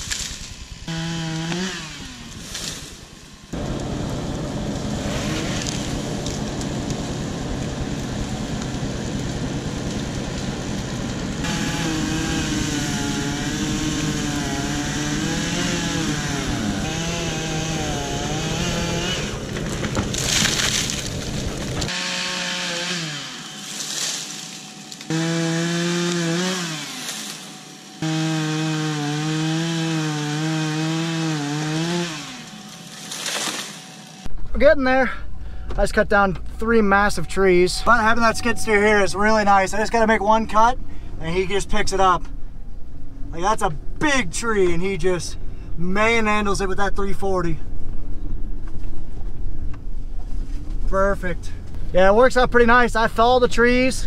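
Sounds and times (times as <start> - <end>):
chainsaw cutting wood: 0.0 - 34.3.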